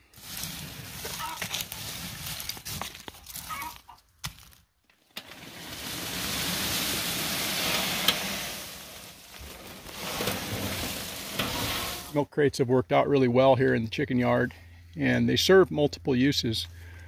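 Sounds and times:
hand rustling wood chips: 0.0s - 4.6s, 5.2s - 12.2s
chickens clucking: 3.4s - 4.0s.

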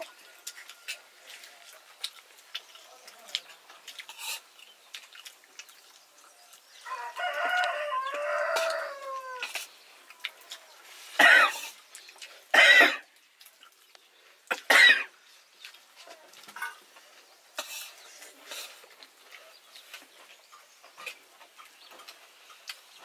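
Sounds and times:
rooster crowing: 6.8s - 9.6s.

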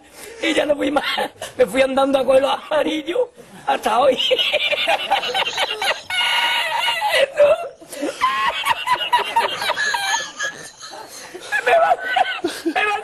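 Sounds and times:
man laughing squeakily: 4.5s - 13.0s.

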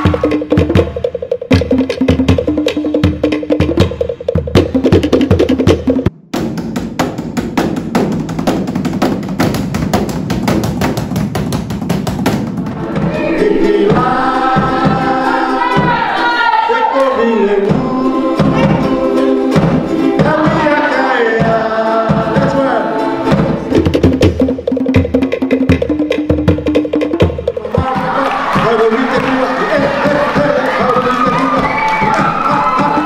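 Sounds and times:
steady drum beat: 0.0s - 33.0s
group singing: 12.7s - 24.0s, 27.6s - 31.4s
stick drumming on plastic lid: 23.2s - 28.8s.

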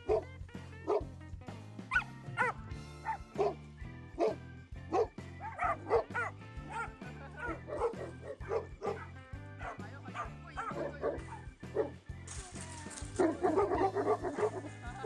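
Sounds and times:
dog barking in high yips: 0.0s - 0.2s, 1.9s - 3.6s, 4.2s - 6.9s, 13.2s - 14.7s
background music with bass line: 0.0s - 15.0s.

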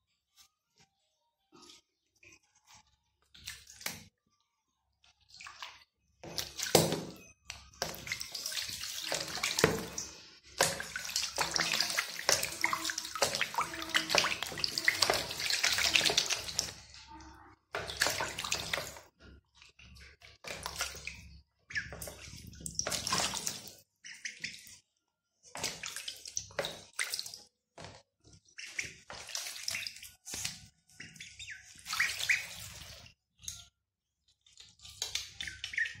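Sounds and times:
ducks splashing in water: 5.3s - 7.2s, 7.8s - 16.8s, 17.7s - 19.1s, 19.9s - 24.8s, 25.5s - 33.1s, 34.9s - 36.0s.

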